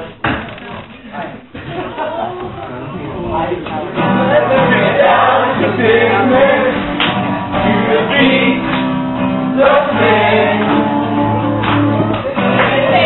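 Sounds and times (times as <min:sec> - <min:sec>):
strummed acoustic guitar: 0:03.8 - 0:13.0
men singing together: 0:04.0 - 0:11.2, 0:12.2 - 0:13.0.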